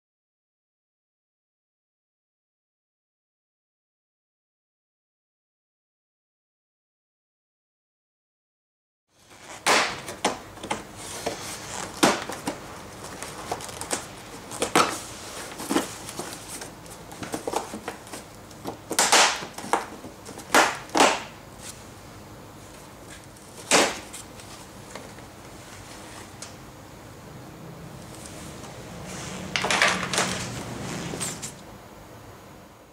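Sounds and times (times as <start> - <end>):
plastic rubbing: 9.2 - 21.8.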